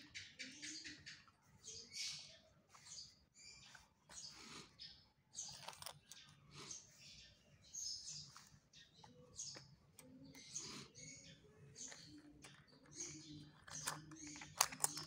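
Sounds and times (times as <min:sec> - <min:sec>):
faint birds chirping: 0:00.0 - 0:15.0
coins clicking and scraping: 0:05.4 - 0:06.6, 0:11.8 - 0:15.0.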